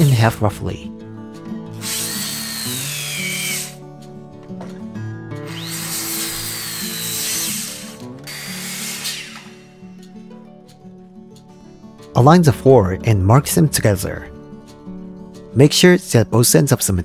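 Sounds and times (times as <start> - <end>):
background music: 0.0 - 17.0
circular saw cutting wood: 1.8 - 3.8, 5.4 - 10.0.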